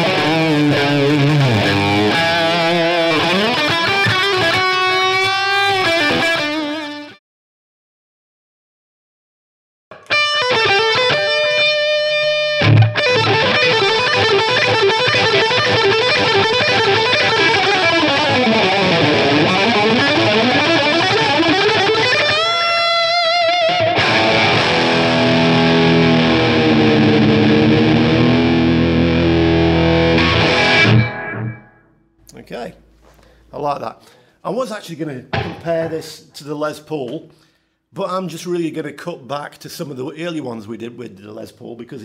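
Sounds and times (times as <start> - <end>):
distorted electric guitar lead: 0.0 - 7.2, 9.9 - 32.0, 35.3 - 36.0.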